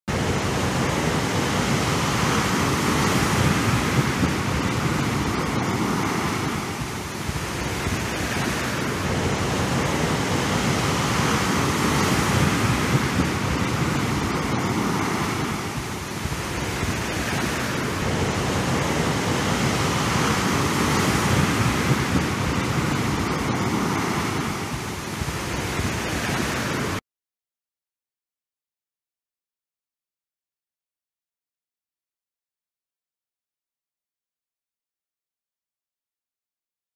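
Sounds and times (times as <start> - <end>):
sea waves breaking: 0.1 - 27.0.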